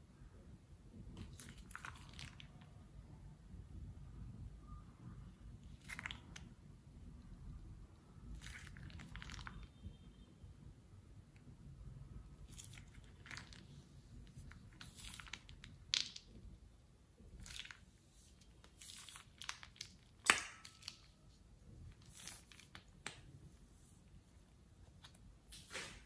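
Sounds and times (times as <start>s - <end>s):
sticky slime squelching: 1.0s - 2.9s, 5.5s - 10.0s, 12.2s - 26.0s.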